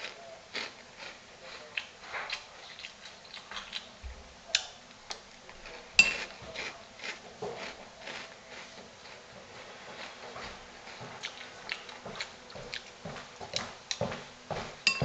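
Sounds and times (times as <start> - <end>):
chewing crunchy cereal: 0.0 - 4.0, 5.0 - 14.9
metal spoon clinking on bowl: 6.0 - 6.3.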